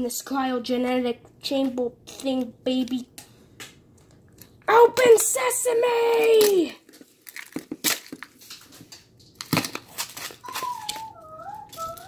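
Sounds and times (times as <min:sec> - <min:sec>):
plastic wrapping tearing and crinkling: 0:06.0 - 0:12.0.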